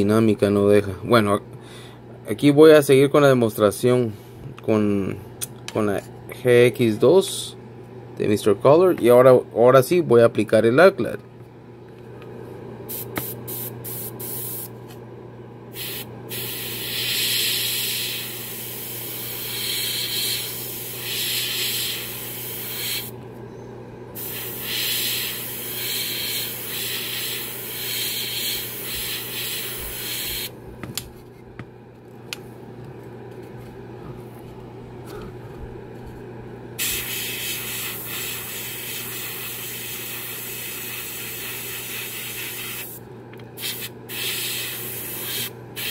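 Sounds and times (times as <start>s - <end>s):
steady low hum: 0.0s - 45.9s
airbrush spraying hiss: 12.9s - 14.7s, 15.8s - 23.1s, 24.2s - 30.5s, 36.8s - 43.0s, 43.6s - 45.9s.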